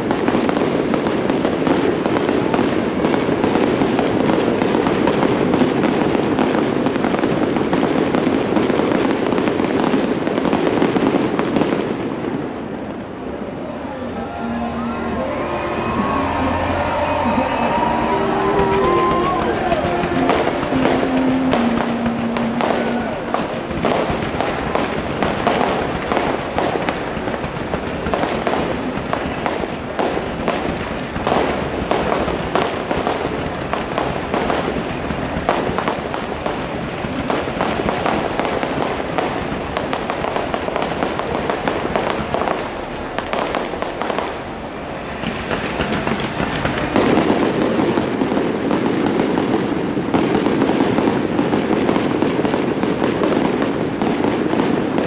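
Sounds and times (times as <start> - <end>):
fireworks launching and bursting: 0.0 - 55.0.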